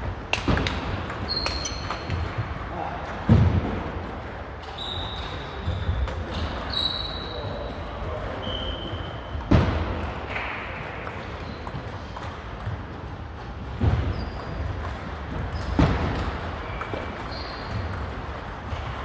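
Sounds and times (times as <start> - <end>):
heavy echoing thuds: 0.0 - 4.4, 9.3 - 12.9, 13.6 - 19.0
table tennis ball clicks: 0.3 - 2.3.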